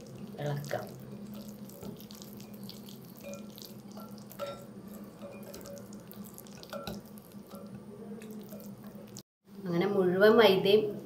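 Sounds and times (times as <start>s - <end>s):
spoon stirring thick batter: 0.0s - 9.2s
low steady hum: 0.0s - 11.0s
spoon clinking against glass: 3.2s - 5.9s, 6.6s - 7.7s.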